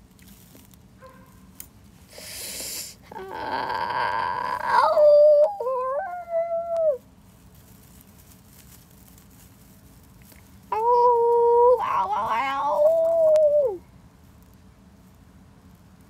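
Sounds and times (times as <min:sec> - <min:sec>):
voice making creature cries: 0:03.1 - 0:07.0, 0:10.7 - 0:13.8.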